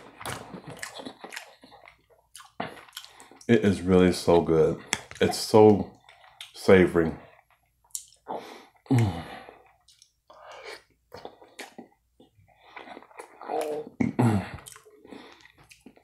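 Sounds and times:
chewing and lip smacking: 0.0 - 3.5, 7.2 - 16.0.

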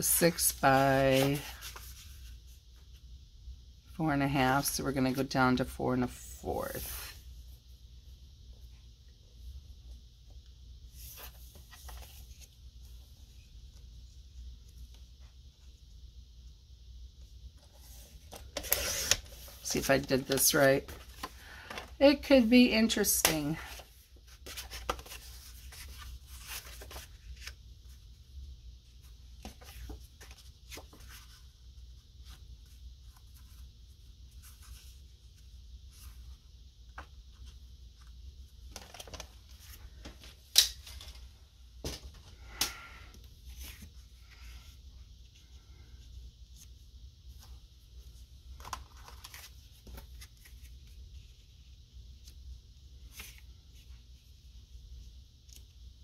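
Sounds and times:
cardstock rustling and scraping: 0.2 - 2.4, 17.6 - 22.2, 23.3 - 27.6.

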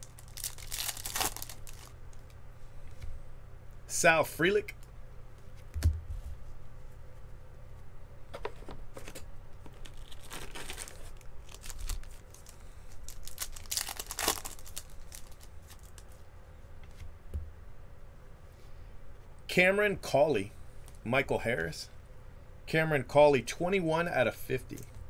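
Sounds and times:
wrappers tearing and crinkling: 0.0 - 2.3, 9.7 - 16.2.

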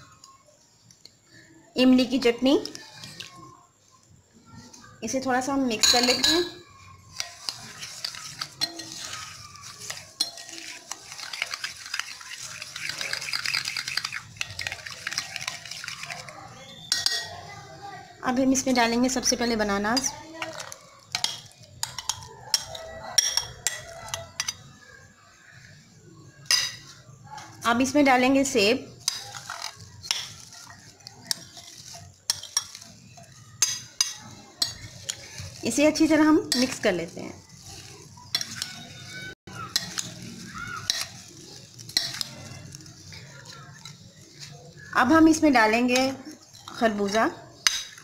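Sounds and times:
spoon scraping in glass bowl: 2.5 - 3.5, 5.7 - 17.5, 18.6 - 24.8, 26.4 - 48.0
spoon clinking against glass: 5.7 - 17.5, 19.4 - 24.8, 26.4 - 27.0, 29.0 - 35.7, 37.4 - 48.0.

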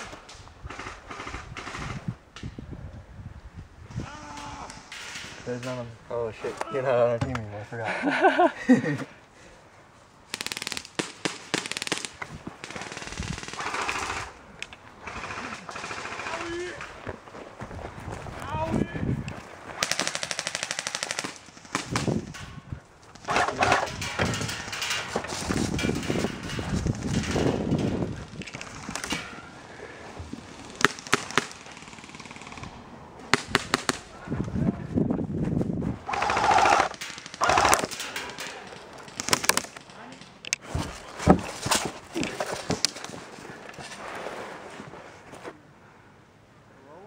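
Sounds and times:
airsoft guns firing rapid bursts: 10.3 - 14.3, 15.0 - 16.6, 19.8 - 22.1, 36.1 - 38.0.

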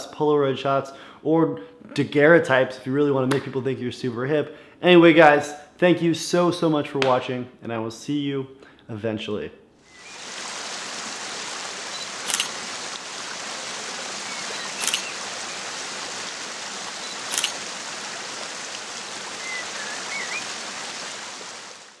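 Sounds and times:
flowing water rushing: 9.8 - 22.0
faint bird chirps: 14.1 - 15.7, 19.3 - 20.5
camera shutter double clicks: 14.8 - 15.1, 17.2 - 17.6.

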